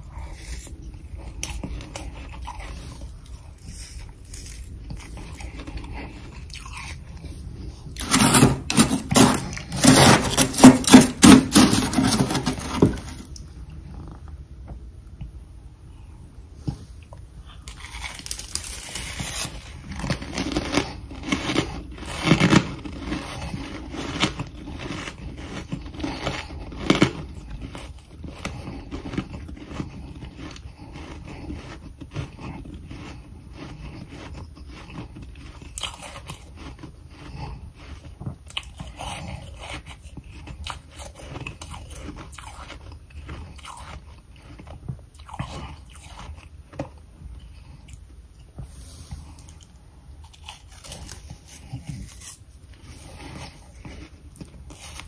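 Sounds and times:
crunching frost: 0.2s - 13.3s, 17.7s - 38.0s.

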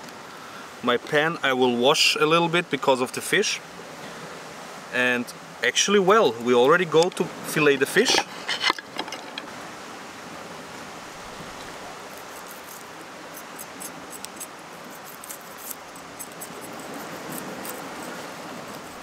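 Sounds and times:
rushing wind and sea: 0.0s - 19.0s
knife cutting fish crackling: 12.1s - 19.0s.

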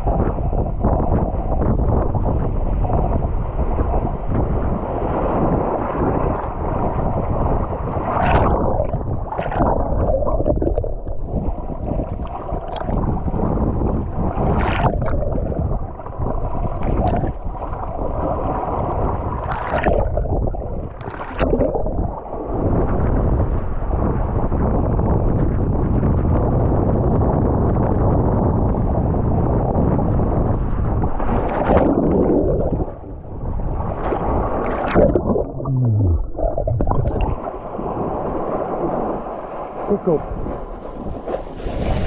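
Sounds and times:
board slapping water: 0.0s - 24.3s, 30.5s - 42.0s
wind buffeting microphone: 0.0s - 42.0s.

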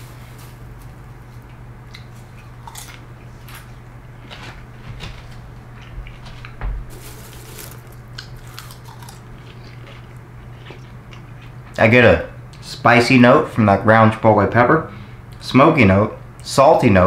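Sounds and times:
hand rummaging through popcorn: 0.0s - 1.0s, 6.9s - 9.1s
man chewing crunchy food: 1.3s - 11.8s.

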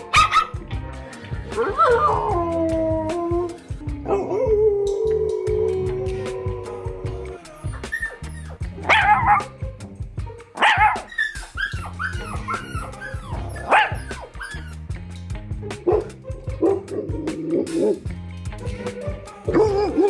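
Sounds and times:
background music with low beat: 0.0s - 20.0s
dog barking: 0.1s - 0.6s, 8.8s - 9.5s, 10.6s - 14.3s, 15.9s - 17.1s
dog yelping: 7.3s - 9.5s, 10.6s - 14.8s.

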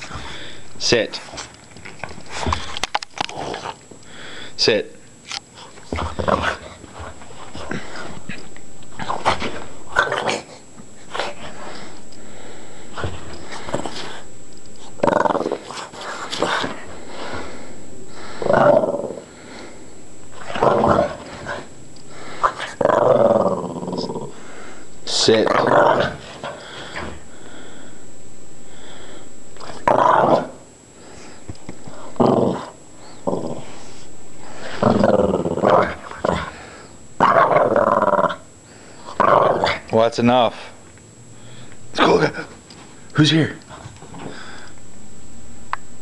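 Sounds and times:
dog growling playfully: 3.2s - 3.8s, 5.6s - 11.5s, 14.9s - 16.9s, 18.3s - 19.3s, 20.3s - 24.5s, 25.4s - 27.1s, 29.6s - 30.7s, 31.9s - 34.0s, 34.6s - 38.5s, 39.1s - 39.9s.

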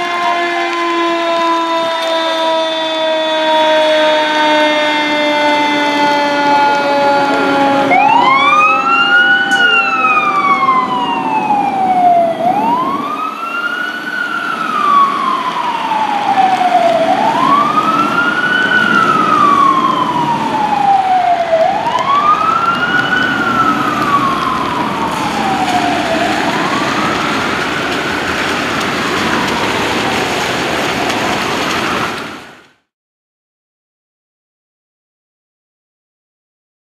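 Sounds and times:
fire truck siren wailing: 0.0s - 32.9s
wet road noise hiss: 12.2s - 32.7s.

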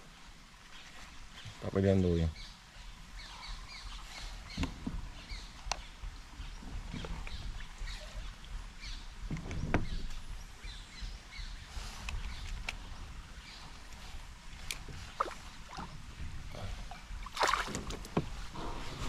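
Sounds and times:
small birds chirping: 0.6s - 19.0s
splashy thuds: 17.3s - 18.4s.

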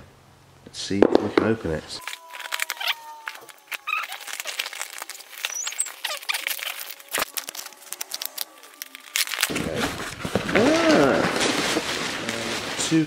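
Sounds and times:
short squeaky chirps: 2.0s - 7.3s
cardboard crackling and rustling: 2.0s - 13.0s.

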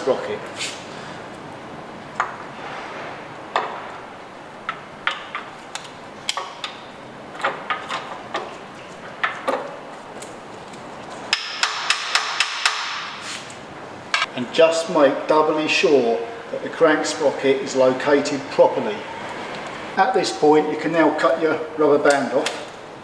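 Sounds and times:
sharp metal taps: 11.3s - 13.1s.

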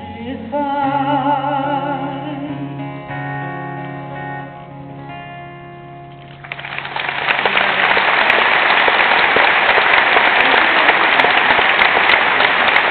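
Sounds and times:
audience applause: 6.2s - 12.9s.

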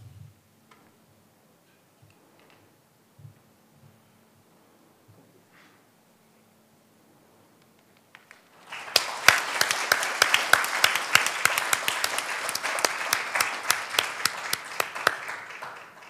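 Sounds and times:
audience applauding: 8.1s - 16.0s
single sharp claps: 8.1s - 16.0s.

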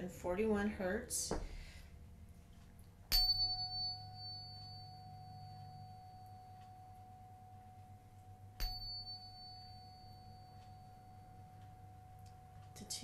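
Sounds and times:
tuning fork struck and ringing: 3.1s - 13.0s.

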